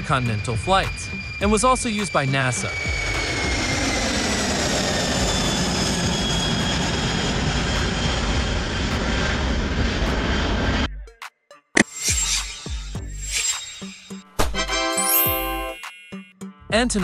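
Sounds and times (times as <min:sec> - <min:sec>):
jet engines roaring with whine: 0:00.0 - 0:10.9.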